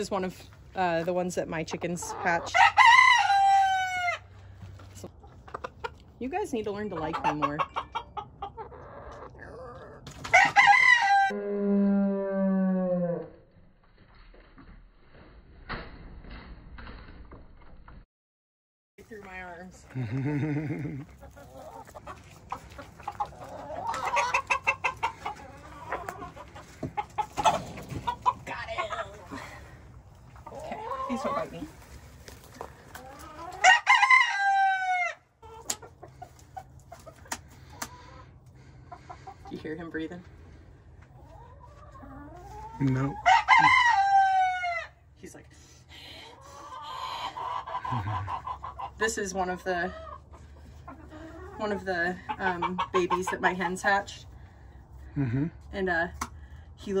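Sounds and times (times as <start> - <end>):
chicken clucking: 0.1 - 11.3, 19.9 - 29.5, 30.1 - 40.2, 40.9 - 44.9, 46.4 - 54.0
rooster crowing: 10.3 - 11.4, 43.3 - 44.8.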